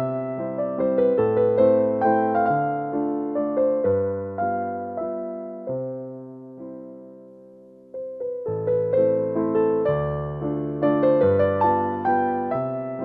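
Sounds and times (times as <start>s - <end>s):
slow piano melody: 0.0s - 13.0s.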